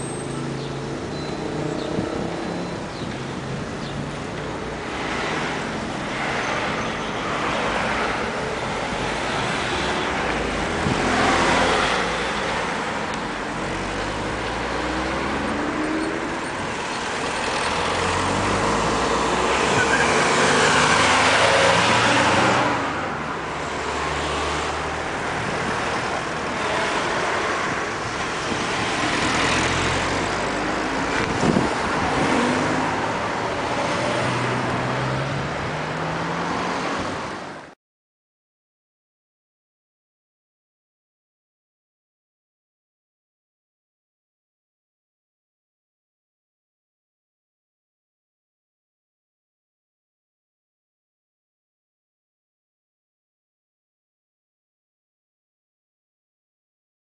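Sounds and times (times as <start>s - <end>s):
cars driving past: 0.0s - 37.7s.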